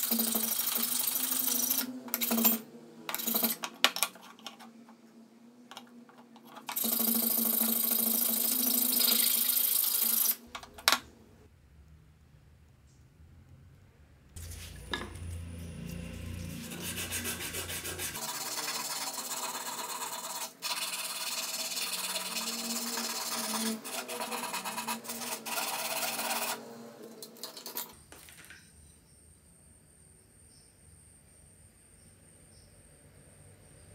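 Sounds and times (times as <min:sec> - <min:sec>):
sandpaper rasping on wooden stick: 0:16.5 - 0:26.6.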